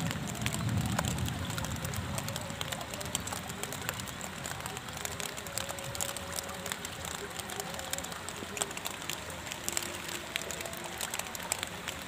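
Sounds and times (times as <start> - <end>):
heavy rain on a river: 0.0 - 12.0.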